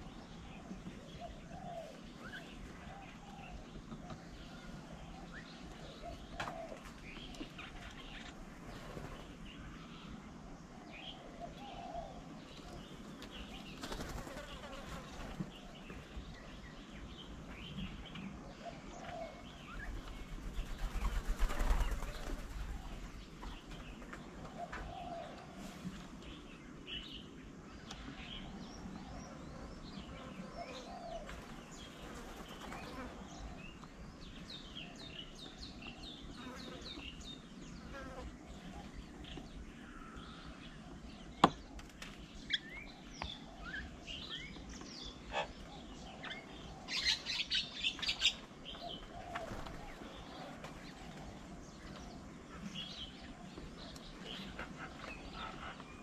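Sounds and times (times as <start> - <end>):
birds chirping and twittering: 0.0 - 56.0
dove cooing: 5.8 - 7.0, 30.4 - 31.6
fluttering wingbeats: 13.6 - 15.4, 19.8 - 23.0.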